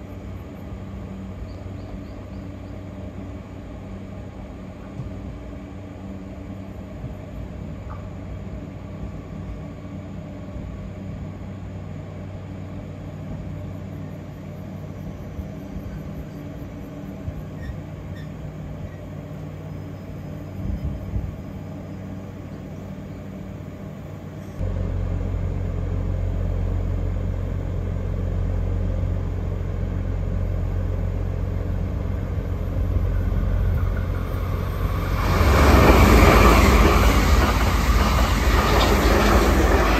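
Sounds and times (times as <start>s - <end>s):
approaching express train: 0.0s - 39.9s
train humming: 0.0s - 39.9s
train wheel squeal: 1.4s - 2.8s, 13.9s - 21.2s, 24.4s - 24.6s, 33.1s - 39.9s.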